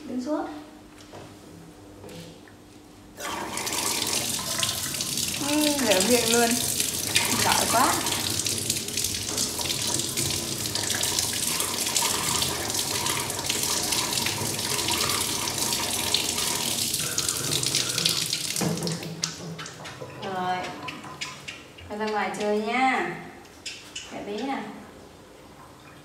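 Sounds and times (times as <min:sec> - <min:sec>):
tap water splashing into sink: 0:03.2 - 0:20.0.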